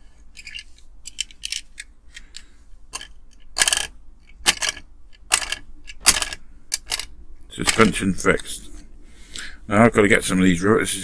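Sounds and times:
toy car clicking on wood: 3.0s - 7.9s.

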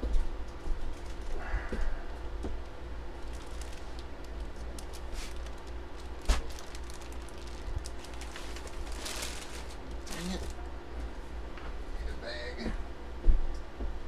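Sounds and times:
steady low hum: 0.0s - 14.0s
handling rustles and clicks: 0.5s - 1.4s.

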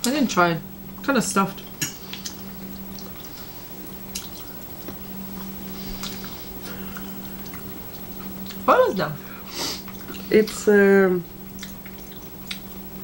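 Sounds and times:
low hum: 0.0s - 13.0s
wet chewing: 0.9s - 8.7s, 9.8s - 10.6s, 11.5s - 12.9s.

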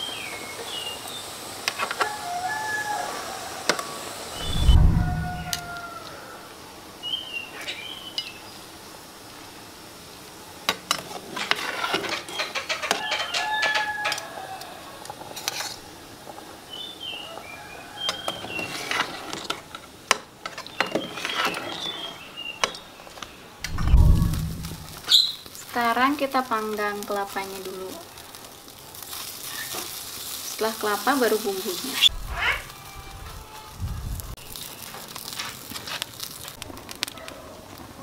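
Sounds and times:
rooster crowing: 2.0s - 6.6s, 12.9s - 15.0s, 17.3s - 18.6s.

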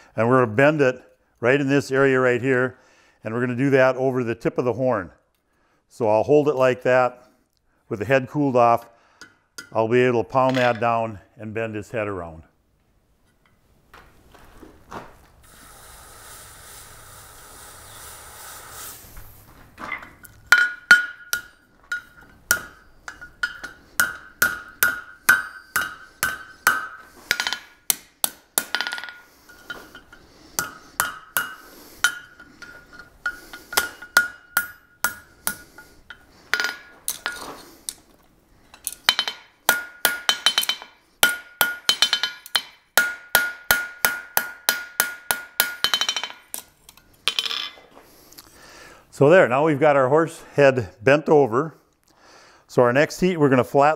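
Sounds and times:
hot metal sizzling in water: 15.4s - 19.1s
hammer ringing on anvil: 20.5s - 35.6s.

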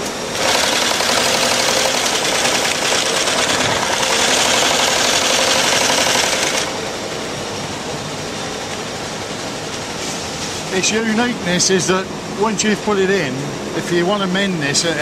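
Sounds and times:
low machinery hum: 0.0s - 15.0s
sewing machine rattling: 0.3s - 6.8s.

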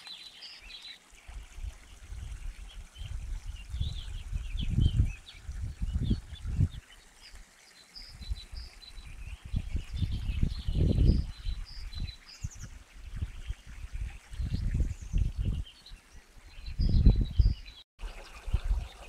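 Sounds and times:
songbirds chirping: 0.0s - 19.0s
low rumbles on microphone: 1.4s - 6.8s, 8.2s - 15.8s, 16.4s - 17.8s.

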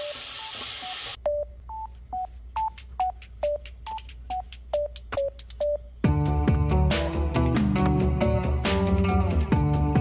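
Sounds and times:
food sizzling in a frying pan: 0.0s - 1.2s
light background melody: 2.7s - 10.0s.

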